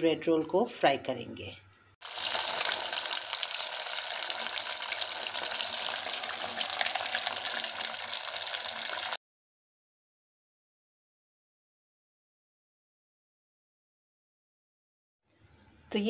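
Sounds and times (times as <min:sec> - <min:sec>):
bread deep-frying in oil: 0:01.8 - 0:09.2.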